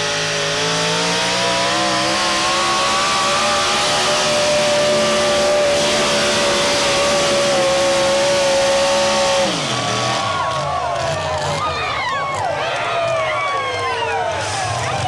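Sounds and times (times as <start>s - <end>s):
truck engine running flat out: 0.0s - 15.0s.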